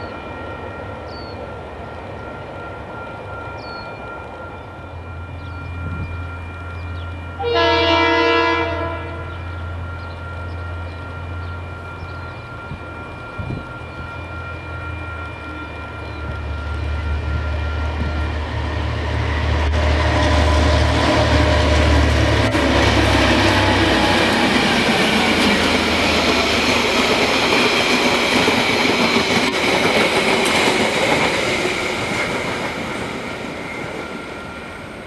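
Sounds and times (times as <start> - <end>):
locomotive air horn blast: 7.4 - 9.4
wheels on rails: 9.4 - 35.0.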